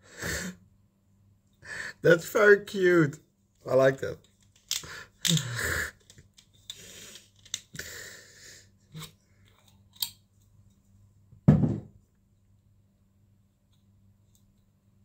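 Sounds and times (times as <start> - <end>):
loud thump: 11.4 - 11.9.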